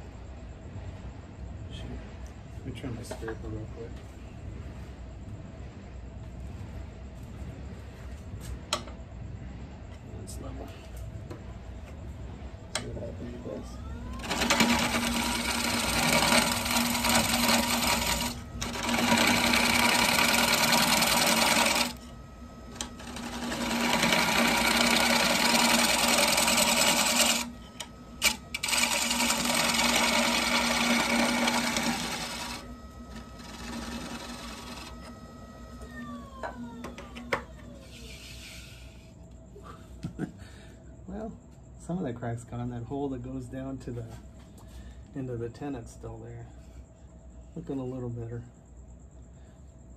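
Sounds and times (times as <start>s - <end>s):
lathe humming: 11.9s - 39.2s
scraper cutting wood bowl: 14.2s - 22.0s, 22.7s - 35.2s.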